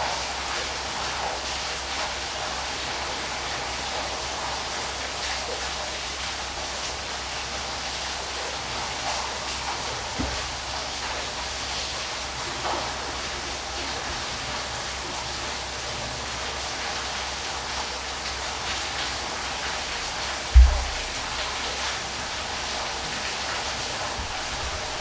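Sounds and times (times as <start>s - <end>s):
waterfall rushing: 18.0s - 25.0s
low thump: 20.5s - 21.5s.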